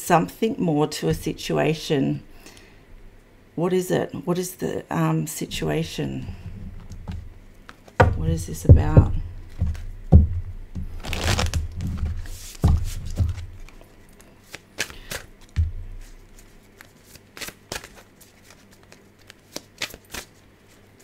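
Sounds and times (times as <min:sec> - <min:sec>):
cards being shuffled: 0:10.8 - 0:21.0.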